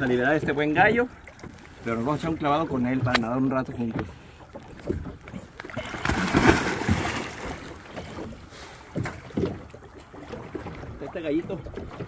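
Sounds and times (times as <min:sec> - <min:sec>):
water sloshing: 0:00.0 - 0:12.0
person splashing into water: 0:05.6 - 0:07.9.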